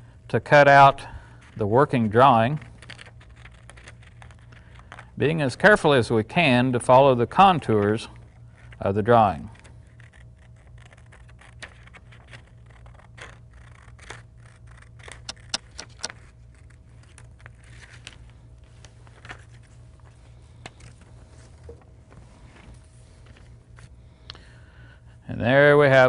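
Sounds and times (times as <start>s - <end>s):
paper rustling: 1.3s - 5.1s, 7.6s - 24.0s
scissors snipping paper: 2.3s - 5.0s, 8.7s - 18.0s.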